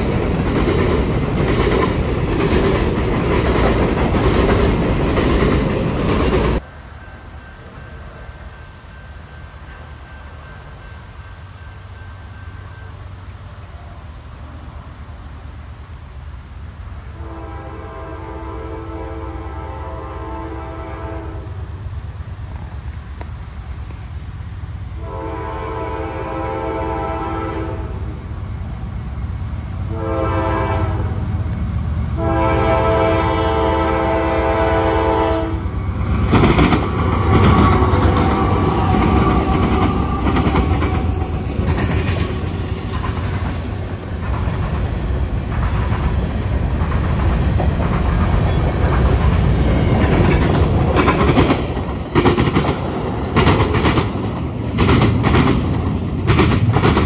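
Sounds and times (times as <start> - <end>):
wheels clicking over rail joints: 0.0 - 6.6, 36.0 - 57.0
train rumbling past: 0.0 - 57.0
locomotive horn blowing: 17.1 - 21.6, 25.0 - 28.1, 29.9 - 31.2, 32.2 - 35.7.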